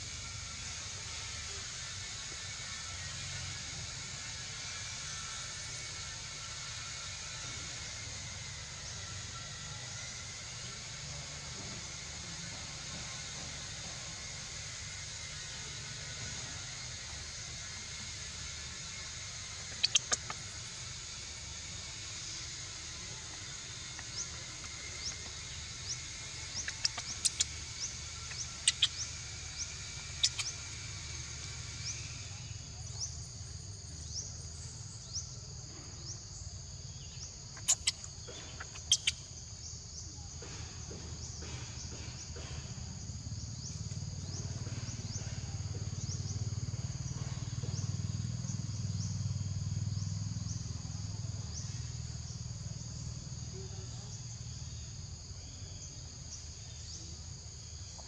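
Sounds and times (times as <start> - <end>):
insect chorus: 0.0 - 58.0.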